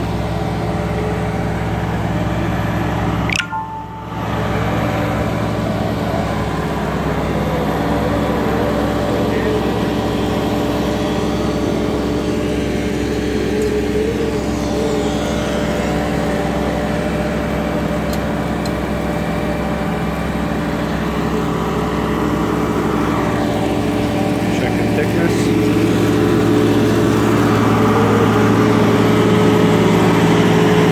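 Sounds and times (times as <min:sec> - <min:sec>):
diesel engine and hydraulics humming: 0:00.0 - 0:30.9.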